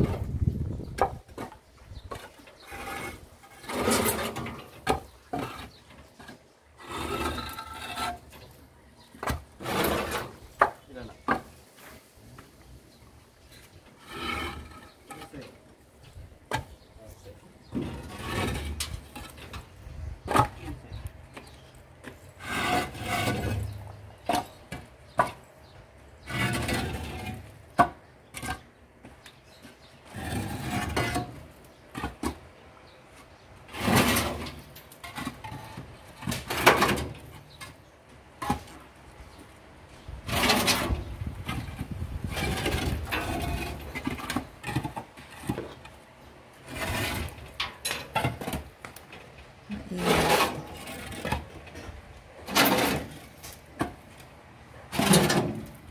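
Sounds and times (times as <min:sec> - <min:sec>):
concrete blocks scraping: 0:00.0 - 0:55.9
concrete blocks knocking: 0:00.1 - 0:02.9, 0:09.1 - 0:11.6, 0:16.4 - 0:16.8.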